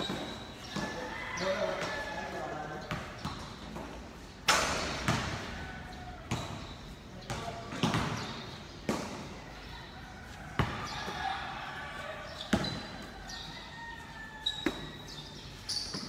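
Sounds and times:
basketball bouncing on concrete: 0:02.8 - 0:04.0, 0:04.8 - 0:05.6, 0:06.2 - 0:09.3, 0:10.6 - 0:11.2, 0:12.5 - 0:13.0
players' voices: 0:04.7 - 0:14.0.

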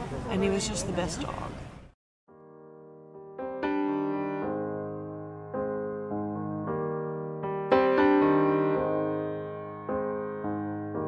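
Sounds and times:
piano music: 0:02.3 - 0:11.0.

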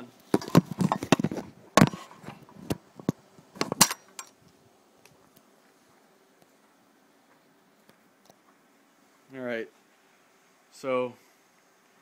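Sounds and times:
faint room hum: 0:00.0 - 0:12.0
sharp knocks and metallic clinks: 0:03.6 - 0:04.4.

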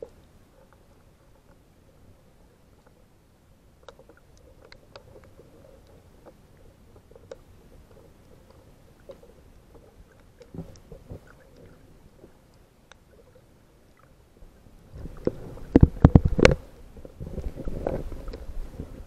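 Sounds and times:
muffled water handling noise: 0:03.8 - 0:19.0.

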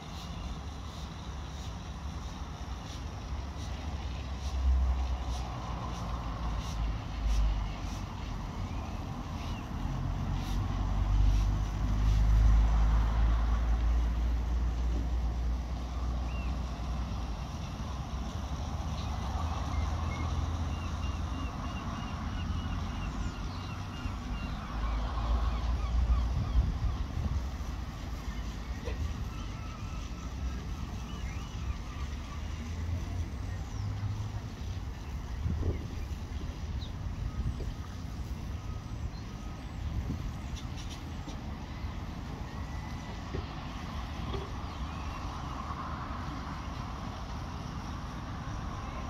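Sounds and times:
wind buffeting microphone: 0:26.1 - 0:29.2, 0:34.4 - 0:38.7.

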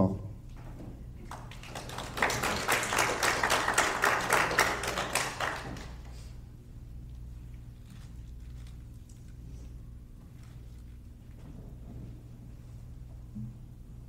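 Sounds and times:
steady low hum: 0:00.0 - 0:14.0
audience applauding: 0:01.2 - 0:06.3.

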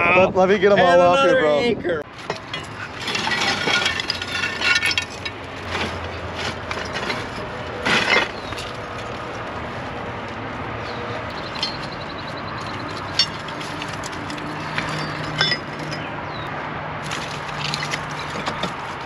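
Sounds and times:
small metal objects clinking: 0:02.3 - 0:05.9, 0:11.3 - 0:16.1, 0:17.1 - 0:18.7.

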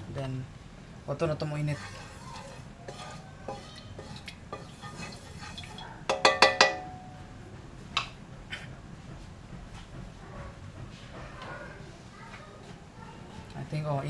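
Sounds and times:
wooden spoon knocking on a wok: 0:01.8 - 0:07.1.

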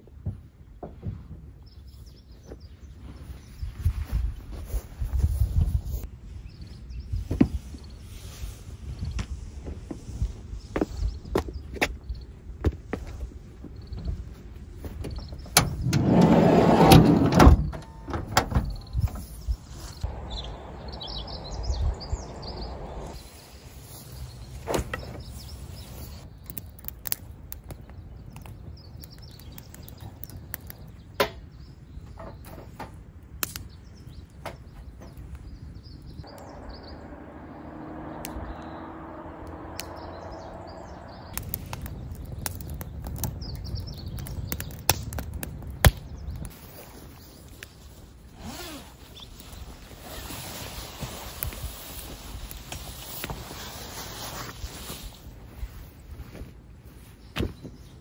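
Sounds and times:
birds chirping: 0:08.9 - 0:33.0, 0:33.6 - 0:50.4.

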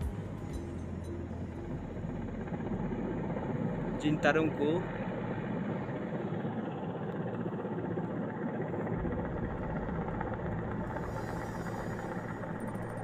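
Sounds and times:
engine droning: 0:08.8 - 0:13.0.

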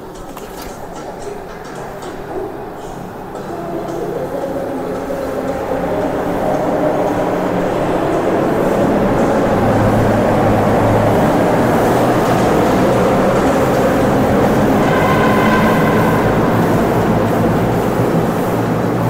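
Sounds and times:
road and tyre rumble: 0:05.2 - 0:19.0
thin high whine: 0:12.9 - 0:19.0.

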